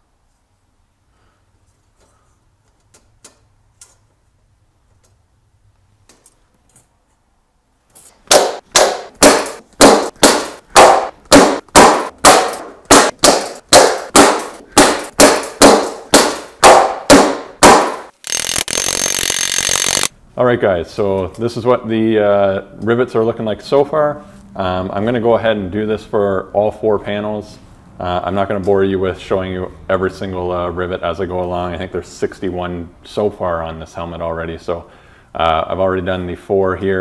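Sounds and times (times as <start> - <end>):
hammer striking metal: 8.3 - 18.2.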